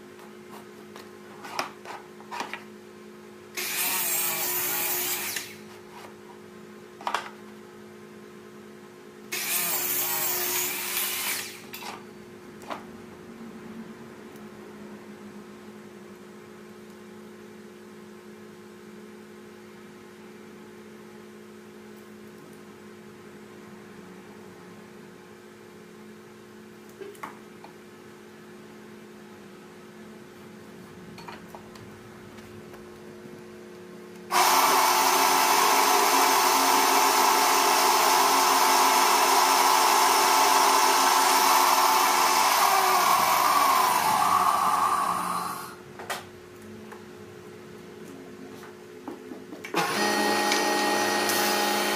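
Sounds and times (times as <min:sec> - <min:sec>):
power tool motor running: 0:09.3 - 0:11.7, 0:34.3 - 0:45.8, 0:49.8 - 0:51.9.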